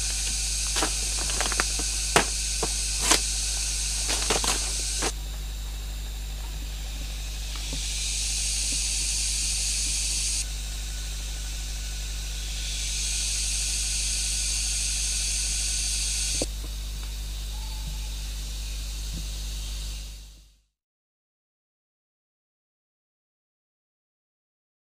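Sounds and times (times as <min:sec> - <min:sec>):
constant low hum: 0:00.0 - 0:13.0
cicadas buzzing: 0:00.0 - 0:20.4.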